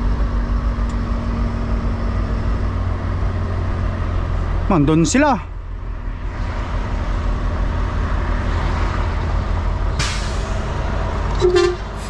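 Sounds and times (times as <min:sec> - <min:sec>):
diesel truck engine running: 0:00.0 - 0:12.0
air brake hiss: 0:10.0 - 0:10.6
horn toot: 0:11.4 - 0:12.0.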